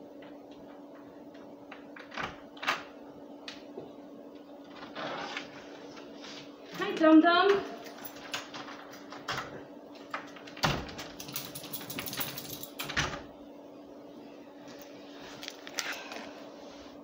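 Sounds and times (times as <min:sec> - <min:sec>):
faint steady hum: 0:00.0 - 0:17.0
door clicking and shutting: 0:10.2 - 0:13.3.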